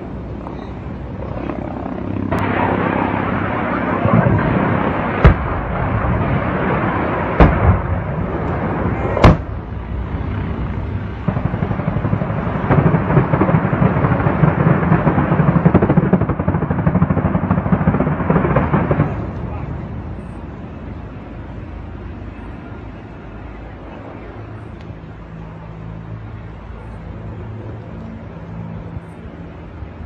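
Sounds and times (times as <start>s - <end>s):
steady rumble: 0.0s - 30.0s
single gunshots: 9.2s - 9.5s.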